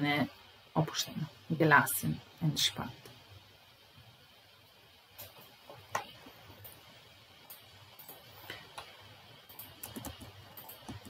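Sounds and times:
keyboard and mouse clicks: 9.5 - 11.0.

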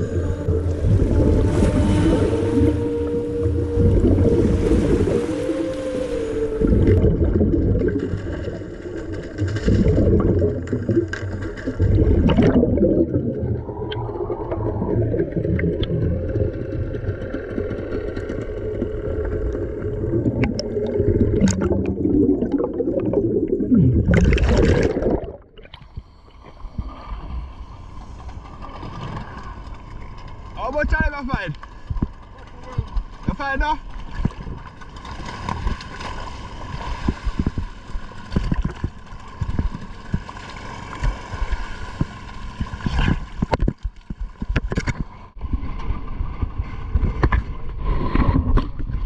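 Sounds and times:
water lapping: 0.0 - 48.8
muffled underwater rush: 0.0 - 49.0
hissing splash: 0.8 - 14.0.

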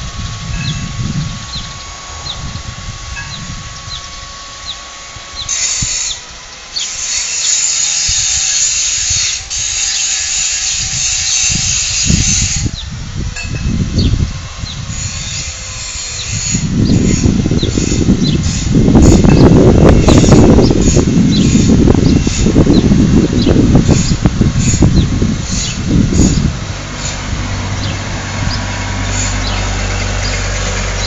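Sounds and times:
low rumbling: 0.0 - 6.8, 10.8 - 31.0
high hissing whir: 0.0 - 31.0
small bird chirping: 0.6 - 6.2.

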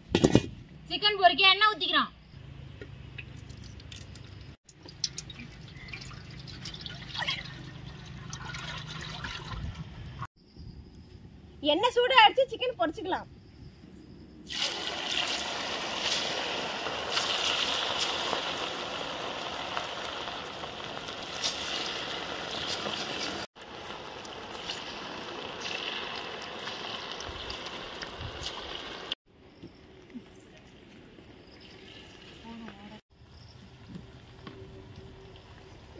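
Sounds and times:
oil crackling and popping: 3.1 - 9.7, 14.5 - 29.2
chicken deep-frying in oil: 3.2 - 10.3, 14.5 - 29.2.

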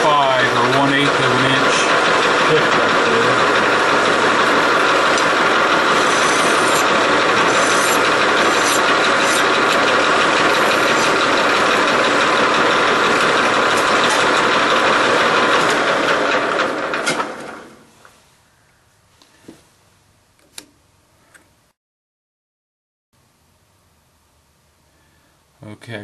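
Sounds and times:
metal lathe running: 0.0 - 17.7
hand file on spinning metal: 5.5 - 11.5.

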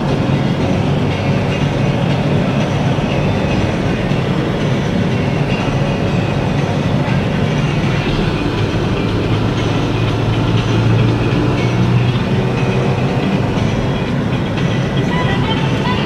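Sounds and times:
car interior engine and tyre drone: 0.0 - 16.0.

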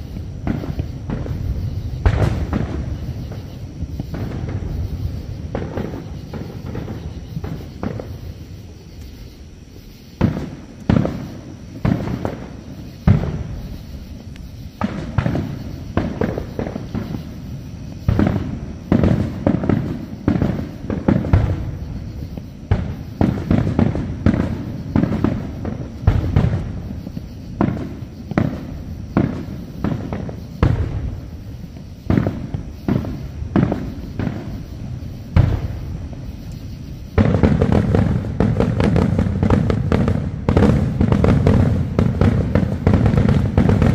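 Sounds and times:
fireworks bursting: 0.0 - 43.9.

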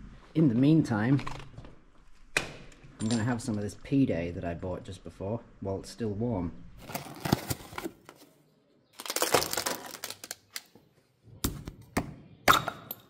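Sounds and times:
styrofoam box crackling: 6.8 - 8.0, 9.0 - 10.7.

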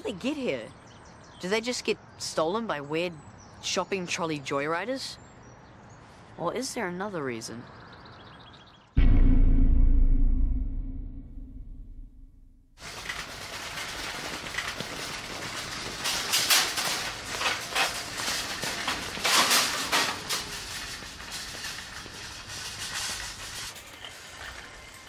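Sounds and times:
shopping trolleys rattling: 12.8 - 25.0
trolleys clattering: 12.8 - 25.0.

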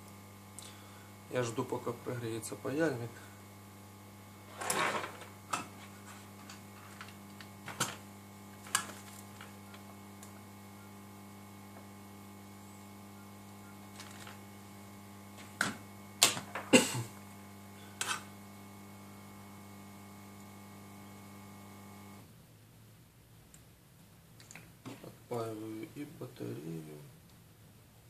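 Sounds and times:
steady low hum: 0.0 - 22.3.

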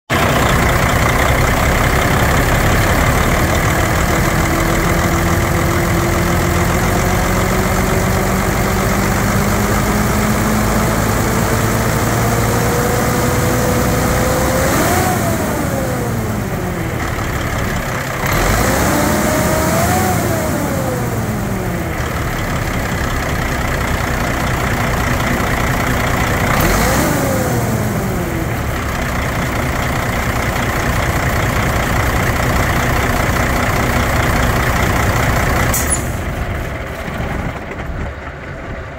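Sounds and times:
diesel truck engine revving: 0.1 - 38.9.

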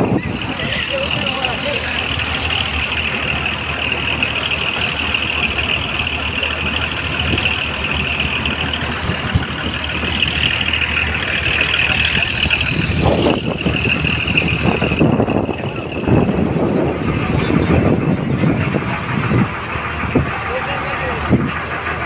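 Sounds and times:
boat engine running: 0.0 - 22.0
water splashing along hull: 0.0 - 22.0.

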